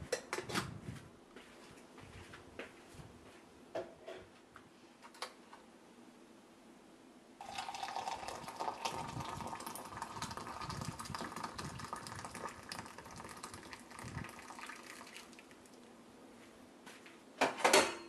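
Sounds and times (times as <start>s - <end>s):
water pouring from kettle: 7.4s - 15.8s.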